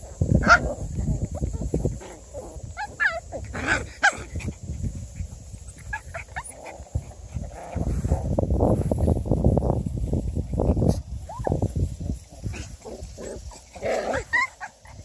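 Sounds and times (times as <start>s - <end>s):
puppies whimpering and yelping: 0.4s - 4.6s, 5.2s - 7.5s, 10.4s - 11.7s, 12.5s - 15.0s
rustling and scuffing: 7.6s - 13.9s.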